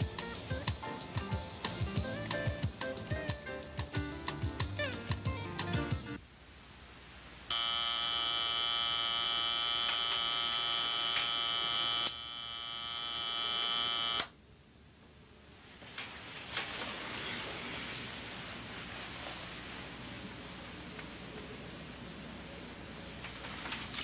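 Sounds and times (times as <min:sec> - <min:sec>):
background music: 0:00.0 - 0:06.2
alarm clock buzzer: 0:07.5 - 0:14.3
rustling of bedding: 0:15.5 - 0:20.1.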